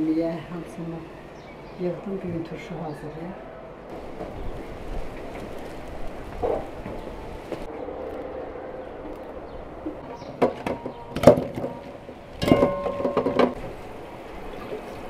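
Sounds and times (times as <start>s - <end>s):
pot clanking against metal sink: 12.4s - 13.6s.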